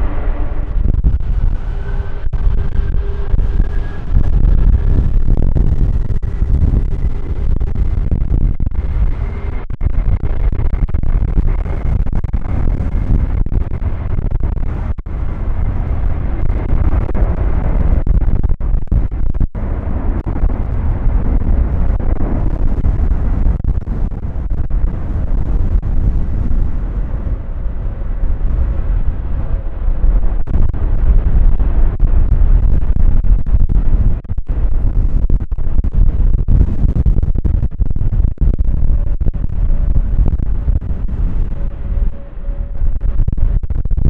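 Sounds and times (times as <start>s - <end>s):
jet engines roaring at takeoff: 0.0s - 33.3s.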